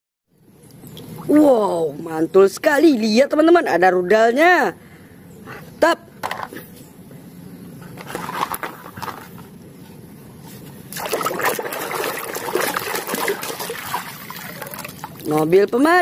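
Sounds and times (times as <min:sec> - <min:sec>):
water sloshing in plastic basin: 0:10.9 - 0:15.6
hand scrubbing toy underwater: 0:11.0 - 0:15.3.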